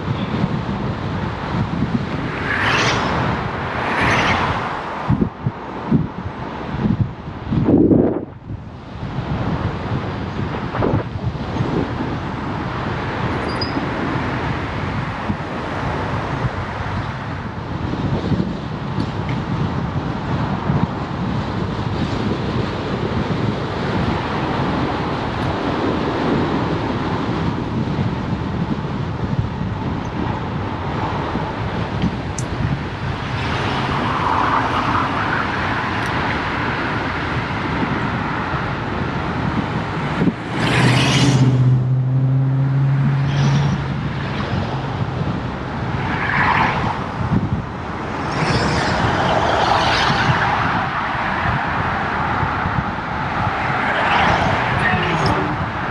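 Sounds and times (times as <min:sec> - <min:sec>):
rushing road noise: 0:00.0 - 0:55.9
vehicle passing close: 0:01.4 - 0:06.0, 0:38.9 - 0:55.9
low engine hum: 0:17.6 - 0:46.2.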